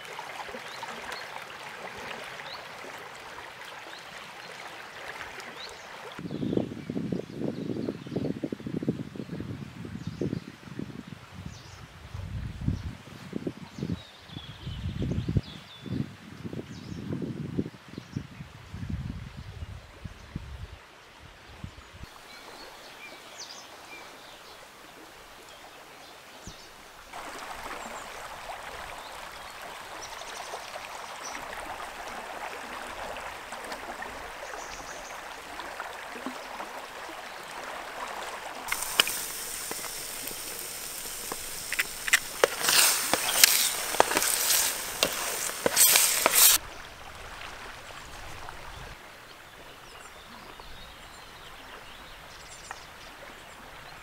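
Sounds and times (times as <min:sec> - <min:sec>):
flowing water rushing: 0:00.0 - 0:06.2, 0:22.1 - 0:50.3
sharp clicks and rustles: 0:38.7 - 0:46.6.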